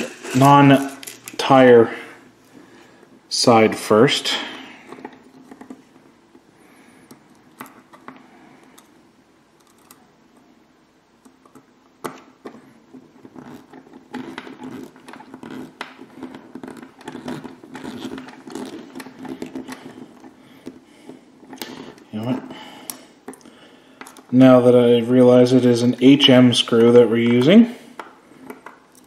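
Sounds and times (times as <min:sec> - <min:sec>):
faint steady hum: 0:00.0 - 0:29.0
screwdriver clicking and scratching: 0:13.3 - 0:20.8.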